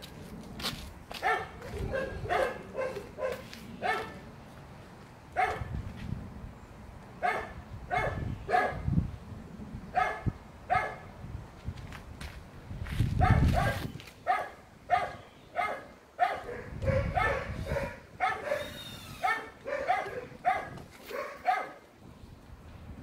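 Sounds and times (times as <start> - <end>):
dog barking: 1.2 - 4.2, 5.4 - 5.7, 7.2 - 8.8, 10.0 - 11.1, 13.2 - 21.8.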